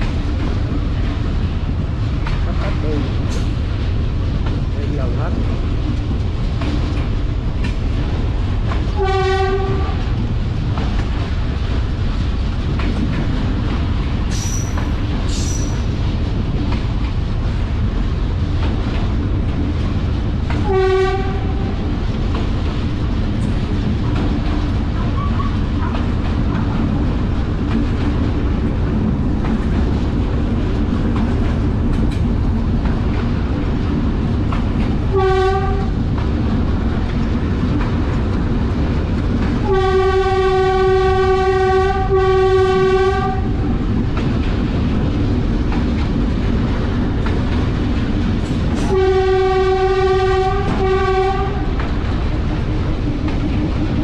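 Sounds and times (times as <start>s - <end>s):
locomotive engine rumble: 0.0s - 54.0s
locomotive horn blasts: 9.0s - 10.1s, 20.6s - 21.8s, 35.1s - 35.9s, 39.6s - 43.5s, 48.9s - 51.7s.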